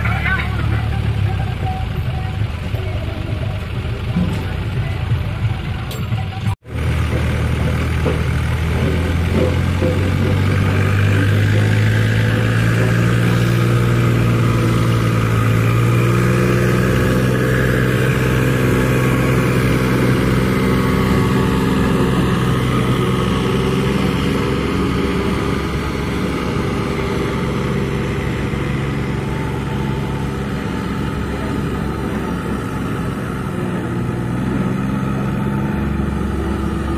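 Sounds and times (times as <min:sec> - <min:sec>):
tractor diesel engine under load: 0:00.0 - 0:36.9.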